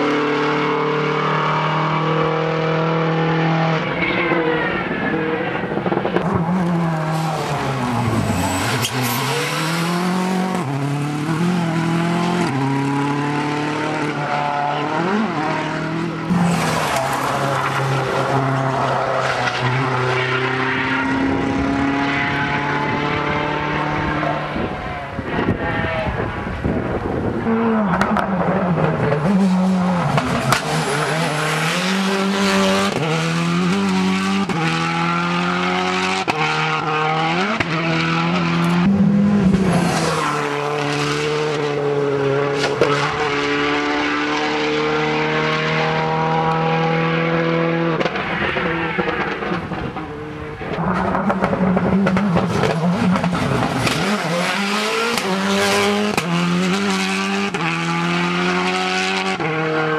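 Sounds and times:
rally car engines revving hard: 0.0s - 59.9s
tire squeal: 6.9s - 10.1s.

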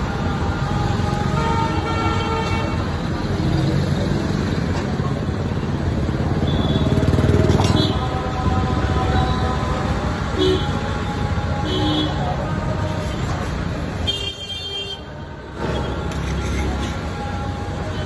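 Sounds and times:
traffic engines running: 0.0s - 18.0s
vehicle horns: 6.4s - 8.2s, 10.3s - 10.9s, 11.6s - 12.3s, 14.0s - 16.7s.

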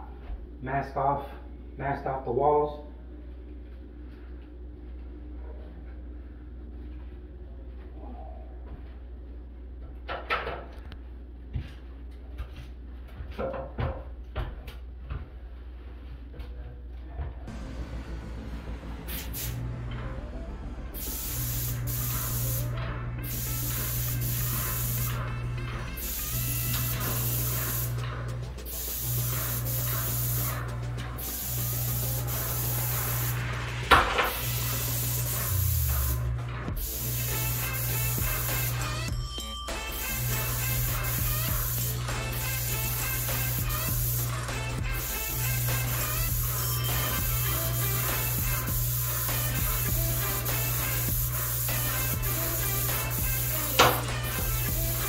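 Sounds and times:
steady low hum: 0.0s - 10.1s, 14.2s - 39.0s
paint sprayer hissing: 17.5s - 20.1s, 20.8s - 39.0s, 40.0s - 55.0s.

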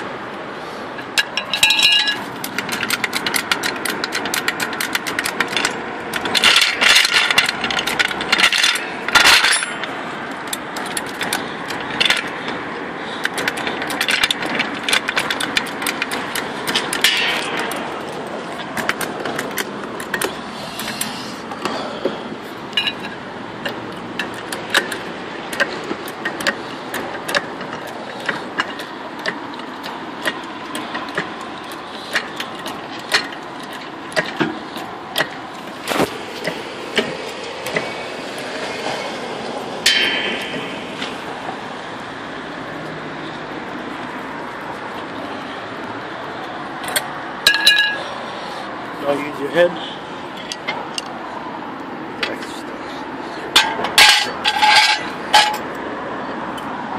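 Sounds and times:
trolley jack pump clicking: 1.0s - 12.6s, 13.2s - 22.1s, 22.7s - 39.0s.

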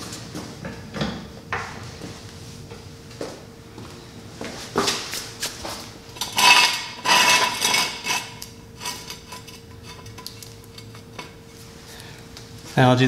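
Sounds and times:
metal jack stand clanking: 6.2s - 11.4s.

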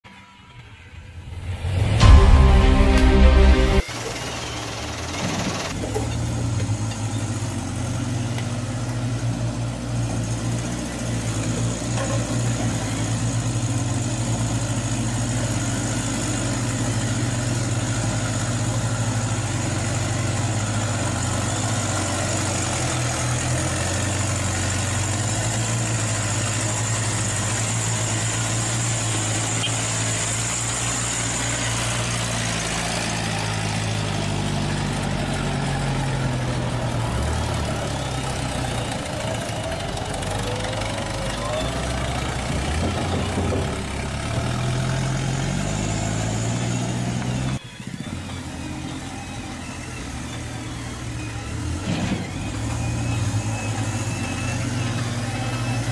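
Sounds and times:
thin high whine: 0.1s - 5.7s
diesel truck engine idling: 0.6s - 55.9s.

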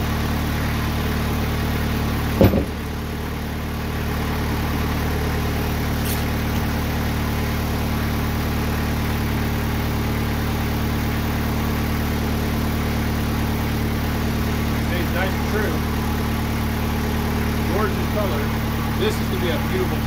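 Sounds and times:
sawmill engine idling: 0.0s - 20.0s
loud thump of slab lifted: 2.4s - 3.0s.

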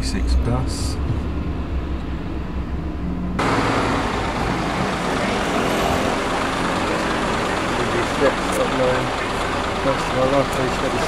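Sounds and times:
car engine rumble: 0.0s - 11.0s
street traffic hiss: 3.4s - 11.0s.

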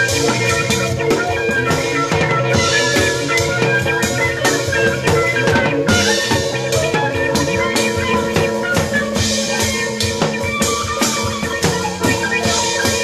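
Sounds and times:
drum kit playing: 0.0s - 13.0s
jazz ensemble playing: 0.0s - 13.0s.

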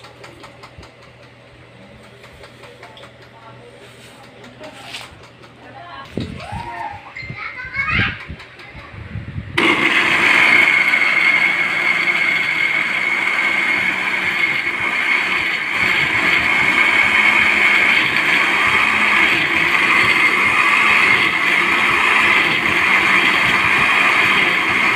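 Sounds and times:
blender running: 9.6s - 24.9s.

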